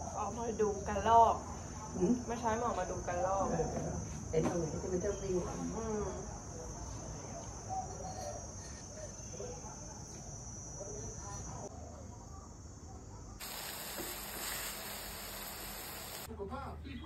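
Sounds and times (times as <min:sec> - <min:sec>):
high-pitched insect trill: 0:07.8 - 0:11.7, 0:13.4 - 0:16.3
omelette sizzling in a wok: 0:13.4 - 0:16.3.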